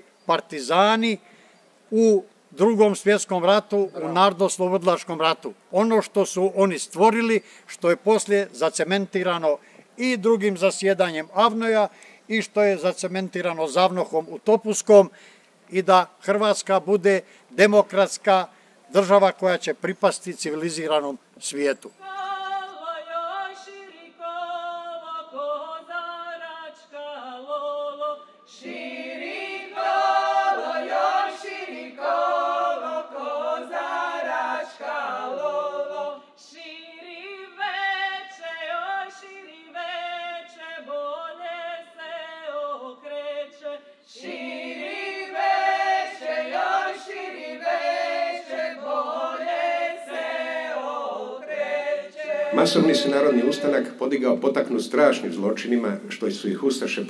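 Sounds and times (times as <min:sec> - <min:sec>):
women's choir singing: 0:22.0 - 0:54.0.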